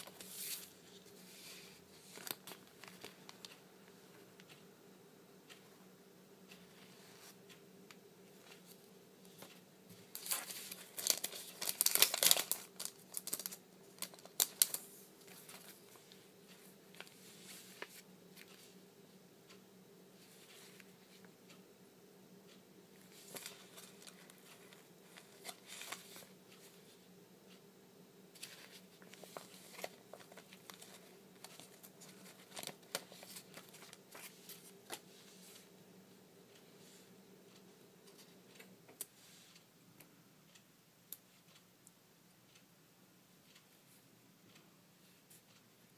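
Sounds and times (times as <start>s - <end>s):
plastic bag crinkling: 10.2s - 14.8s.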